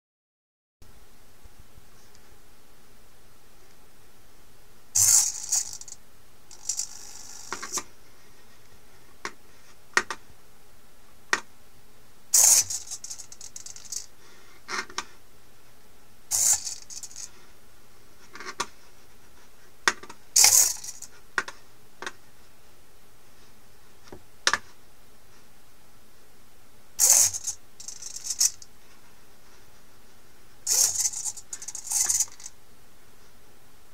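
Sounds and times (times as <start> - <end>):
servos buzzing: 5.0 - 7.8
sharp clicks and rattles: 5.0 - 7.8, 30.7 - 32.5.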